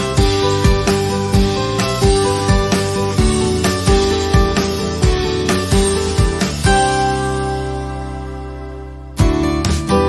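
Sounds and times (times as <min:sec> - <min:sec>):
plucked acoustic guitar: 0:00.0 - 0:10.0.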